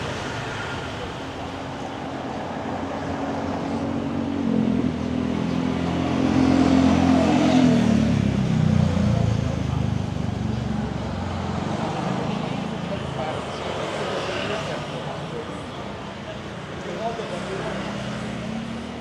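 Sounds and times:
passing vehicle engine: 0.0s - 19.0s.

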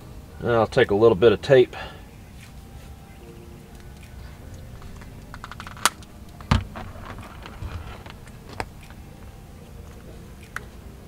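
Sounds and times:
crackly tape rustling: 2.3s - 10.8s
tape clicks: 3.7s - 10.7s.

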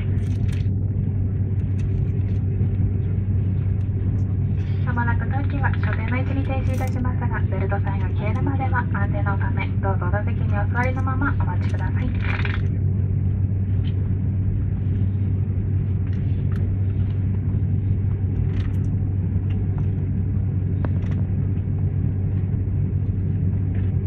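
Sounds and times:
airliner cabin rumble: 0.0s - 24.0s.

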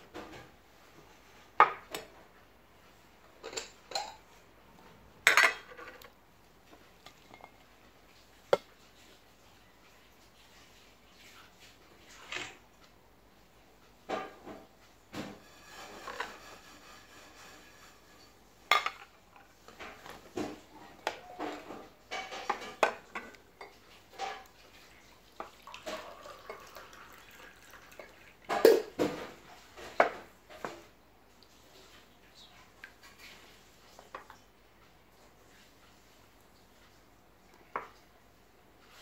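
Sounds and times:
metal ladle scraping a pot: 15.4s - 18.4s.

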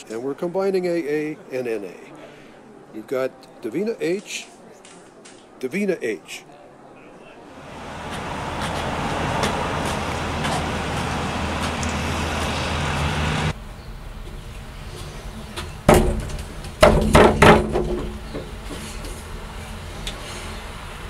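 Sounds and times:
city street traffic: 7.1s - 21.0s
sharp knock: 15.9s - 18.1s
phone booth door banging open: 15.9s - 18.5s.

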